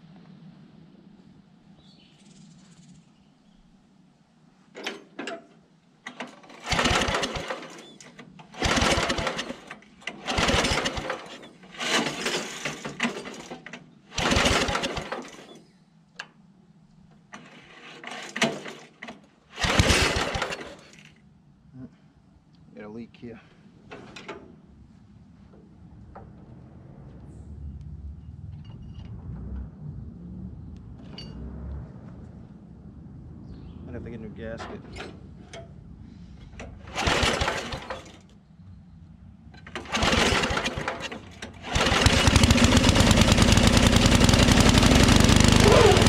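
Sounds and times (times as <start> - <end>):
engine recoil starter cranking: 6.1 - 15.6, 17.3 - 21.1, 36.5 - 38.3, 39.6 - 46.0.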